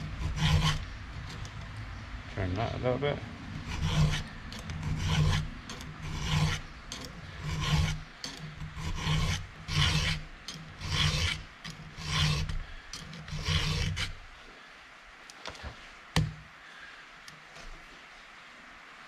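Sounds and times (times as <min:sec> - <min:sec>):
hand file rasping on chainsaw chain: 0:00.0 - 0:01.7, 0:03.5 - 0:14.2.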